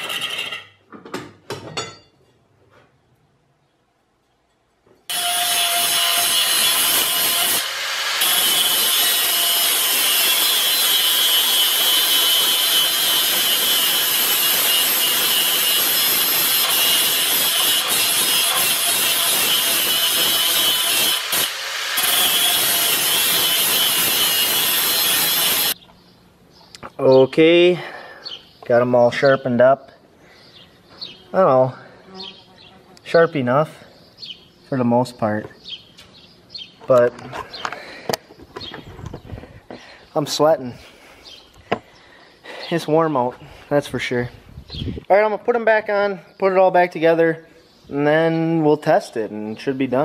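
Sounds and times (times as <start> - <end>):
angle grinder grinding steel: 0.0 - 0.7, 5.1 - 25.8.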